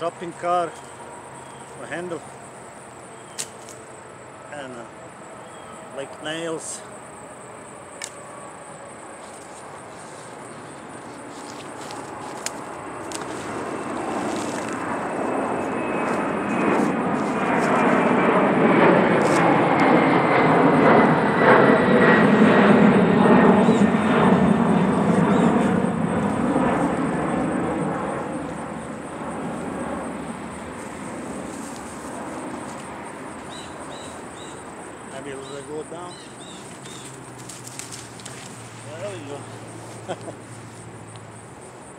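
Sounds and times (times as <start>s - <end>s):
aircraft engine passing overhead: 0.0s - 41.9s
high whine dropping in pitch: 12.6s - 36.1s.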